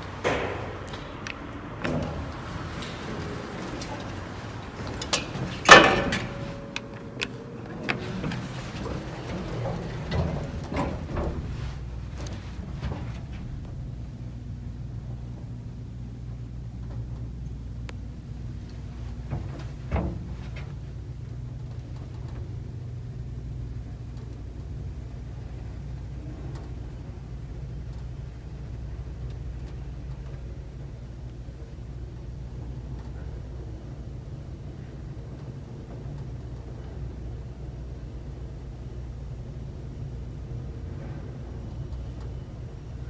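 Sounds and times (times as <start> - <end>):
elevator hum and rumble: 0.0 - 43.0
knock in elevator: 0.1 - 3.6.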